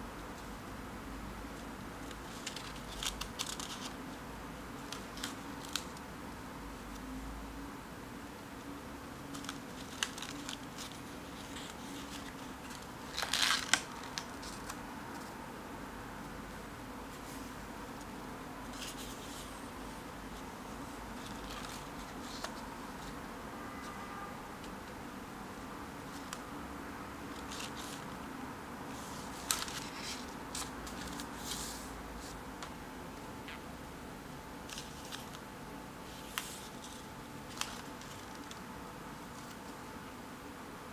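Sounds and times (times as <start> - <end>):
paper page rustling: 2.0 - 4.0, 9.3 - 15.3, 18.7 - 19.5, 20.8 - 23.2, 27.3 - 28.2, 28.9 - 32.8, 34.7 - 38.7, 39.3 - 39.8
paper ticking when handled: 2.0 - 4.0, 9.2 - 15.4, 36.1 - 39.8.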